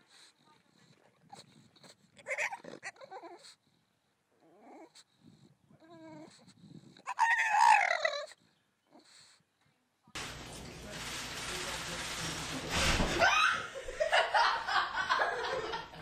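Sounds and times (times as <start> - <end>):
dog whining: 2.2 - 3.6, 4.4 - 5.1, 5.8 - 9.3.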